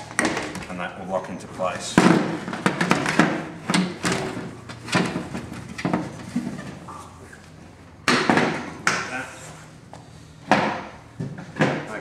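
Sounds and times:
plastic panels knocking and rustling: 0:02.0 - 0:06.8.

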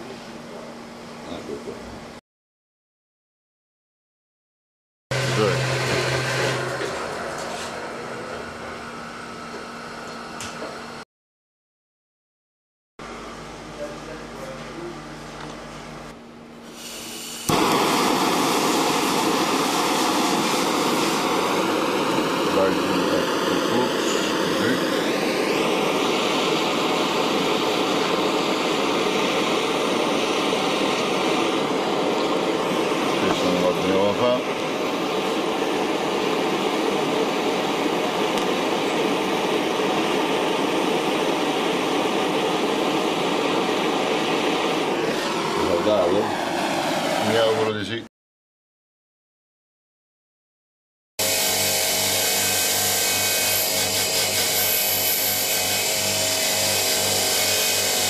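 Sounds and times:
flame hissing: 0:16.6 - 0:47.4
gas torch lighting: 0:16.6 - 0:47.4.

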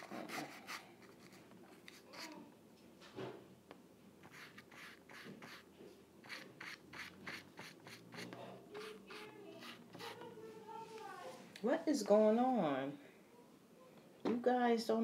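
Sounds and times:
paintbrush scratching on canvas: 0:00.0 - 0:02.3, 0:04.2 - 0:11.4.

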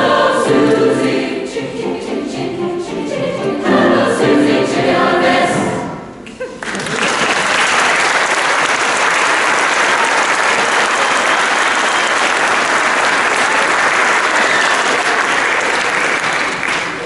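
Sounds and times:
audience applauding: 0:06.6 - 0:17.0.

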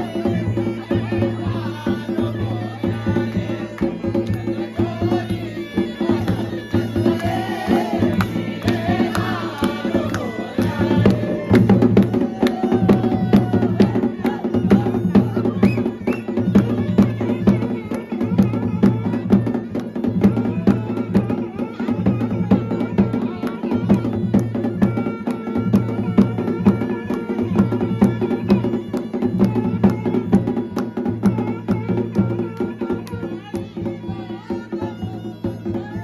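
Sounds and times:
dhol drumming dance rhythm: 0:00.0 - 0:36.0
melody over drum beat: 0:00.0 - 0:36.0.

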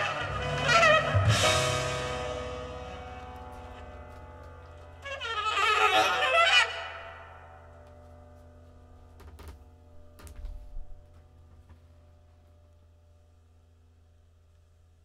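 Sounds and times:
low playback hum: 0:00.0 - 0:15.0
faint clicks and thumps: 0:07.9 - 0:11.9.

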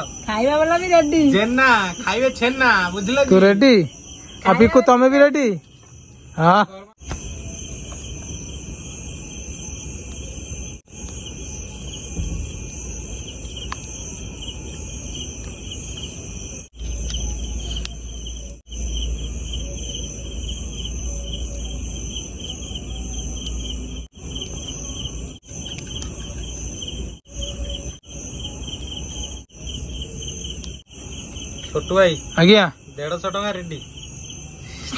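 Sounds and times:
crickets chirping: 0:00.0 - 0:34.9.

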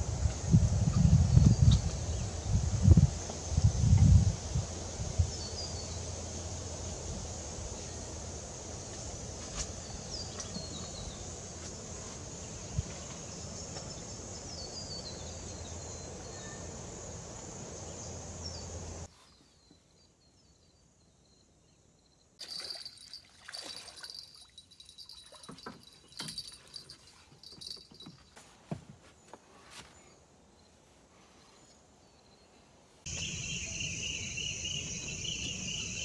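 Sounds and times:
high insect buzz: 0:33.1 - 0:36.0.

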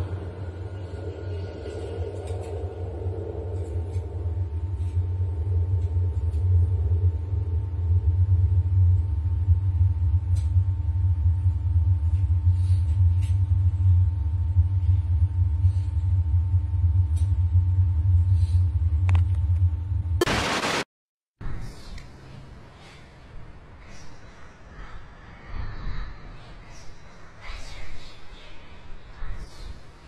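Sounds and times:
low rumbling drone: 0:00.0 - 0:20.8.

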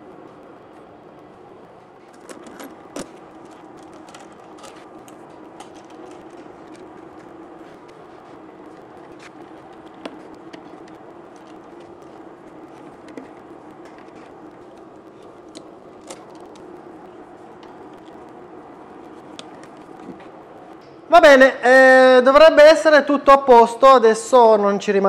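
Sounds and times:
low hum: 0:00.0 - 0:21.1.

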